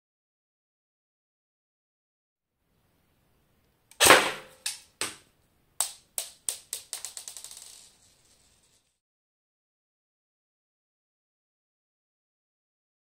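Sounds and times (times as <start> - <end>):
airsoft gun firing cracks: 4.0 - 4.9.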